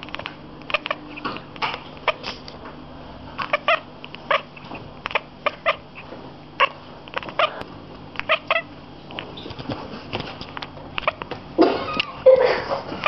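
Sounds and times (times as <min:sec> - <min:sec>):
cat chattering chirps: 0:00.1 - 0:01.3, 0:03.4 - 0:07.6, 0:08.2 - 0:08.7, 0:11.0 - 0:11.2.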